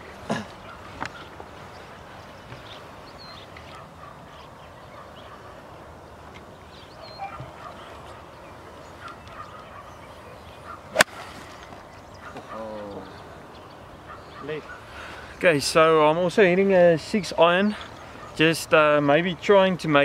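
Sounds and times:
golf club striking ball: 10.9 - 11.8.

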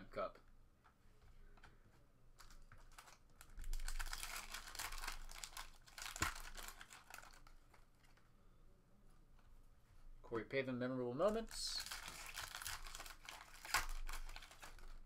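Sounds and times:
foil wrapper crinkling and tearing: 2.4 - 7.5, 11.3 - 15.0.

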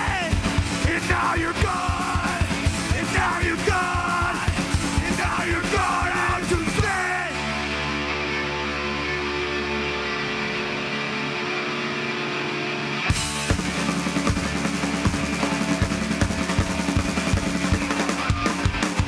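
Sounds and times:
drums: 0.0 - 9.8, 10.6 - 19.0
distorted electric guitars and bass: 0.0 - 19.0.

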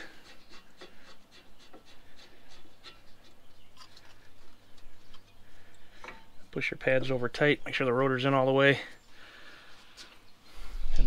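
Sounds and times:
steel parts clicking and scraping: 0.0 - 5.4.

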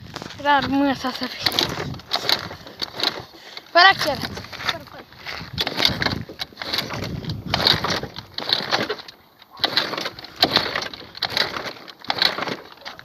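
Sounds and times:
scooter kick-started without catching: 0.1 - 13.0
person breathing heavily: 3.2 - 3.8.

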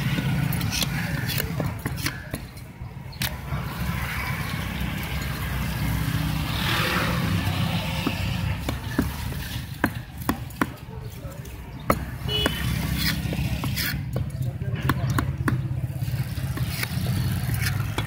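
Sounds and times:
vehicle engine rumbling: 0.0 - 18.0.

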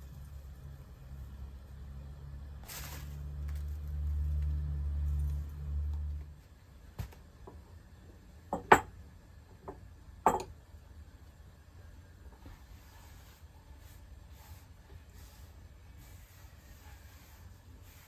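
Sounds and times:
glass knocking on wooden table: 8.5 - 8.9, 9.7 - 10.5.

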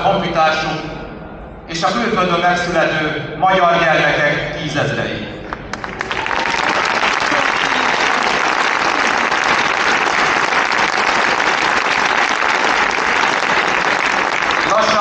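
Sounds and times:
crowd applauding: 5.5 - 15.0.

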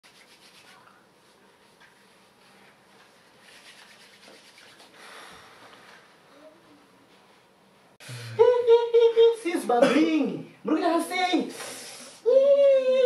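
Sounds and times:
palms rubbing together: 0.0 - 5.0.

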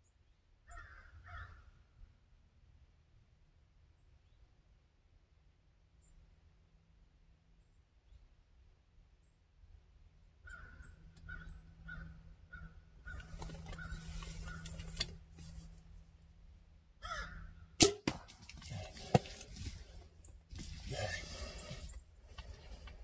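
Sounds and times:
rustling leaves: 13.1 - 16.4
sharp loud crack: 17.8 - 18.4.

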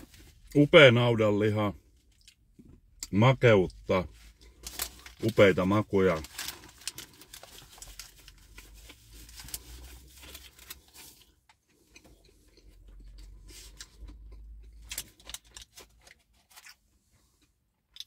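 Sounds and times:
paper wrapper crinkling: 4.2 - 11.3, 14.8 - 16.8
wet chewing: 11.1 - 16.8.

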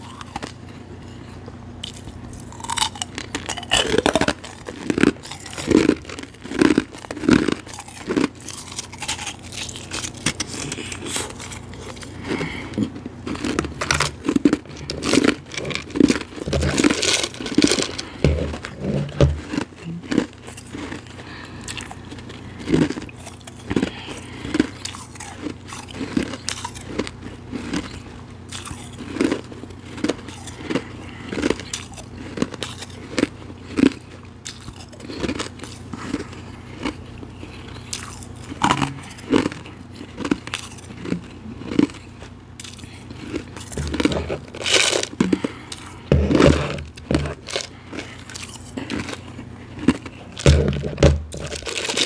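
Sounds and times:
chewing crunchy ice: 0.0 - 52.0
fingers digging ice from plastic tub: 13.3 - 19.7, 50.0 - 52.0.

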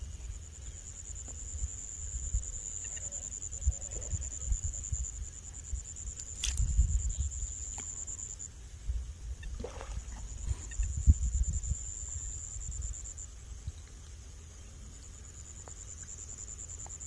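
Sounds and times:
high insect trill: 0.0 - 8.6, 9.4 - 13.8, 14.6 - 17.0
wind buffeting microphone: 6.4 - 7.5, 8.8 - 12.9.

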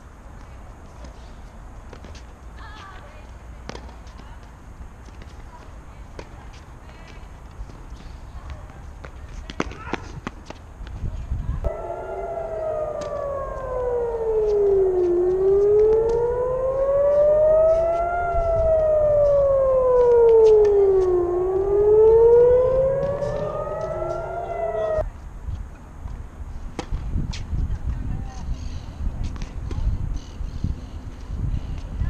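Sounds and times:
siren wailing: 11.7 - 25.1.

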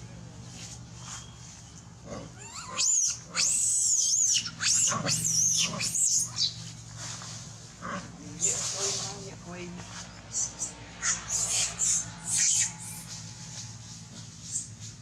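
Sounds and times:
monkey screaming: 2.4 - 6.6, 10.3 - 13.2.

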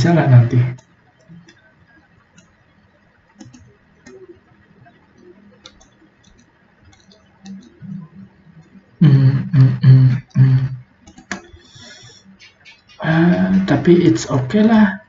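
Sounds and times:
low hum: 0.0 - 15.0
computer mouse clicks: 0.7 - 8.9, 11.0 - 13.0.

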